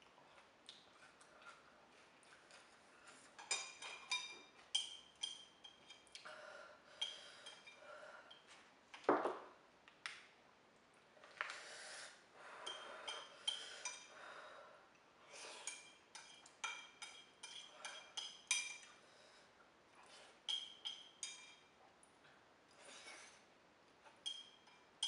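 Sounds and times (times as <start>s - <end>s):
chopsticks clinking on a ceramic bowl: 3.4s - 6.0s, 15.7s - 19.0s, 20.5s - 21.7s, 24.1s - 24.9s.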